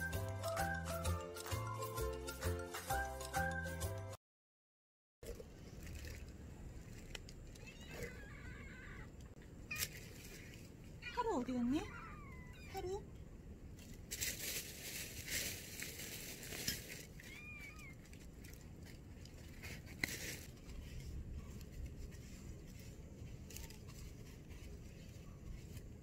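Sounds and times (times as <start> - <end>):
rustling and crinkling: 5.2 - 12.7, 13.6 - 26.0
low outdoor rumble: 5.2 - 26.0.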